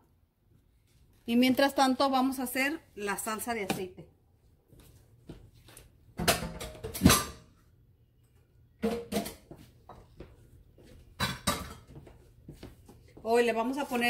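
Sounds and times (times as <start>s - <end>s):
kitchenware knocking and clattering: 6.2s - 7.5s, 8.8s - 9.5s, 11.1s - 12.0s.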